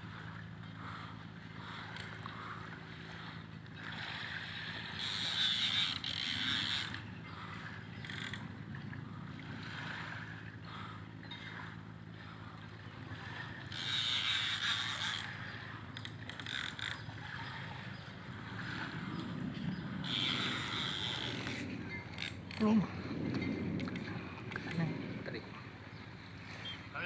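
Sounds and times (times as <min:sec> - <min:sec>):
fishing reel whirring: 0:00.2 - 0:08.6, 0:13.2 - 0:22.8
fishing line hissing: 0:04.5 - 0:07.0, 0:13.7 - 0:17.1, 0:19.7 - 0:22.6.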